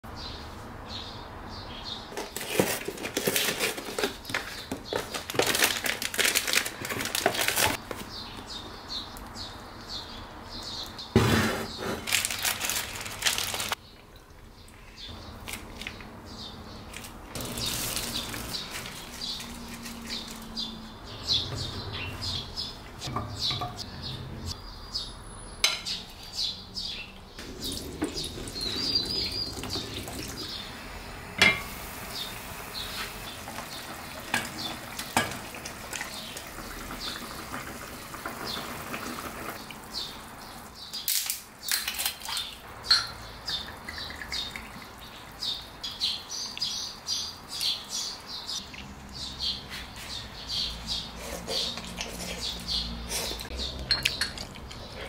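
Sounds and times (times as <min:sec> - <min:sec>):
plastic packets crinkling: 0:02.2 - 0:08.0, 0:12.0 - 0:13.8, 0:17.0 - 0:20.6
dishes clinking: 0:23.0 - 0:24.0, 0:25.6 - 0:26.0, 0:31.4 - 0:31.7, 0:35.2 - 0:35.5, 0:42.8 - 0:43.7, 0:53.8 - 0:54.8
water pouring into metal pot: 0:27.4 - 0:30.5.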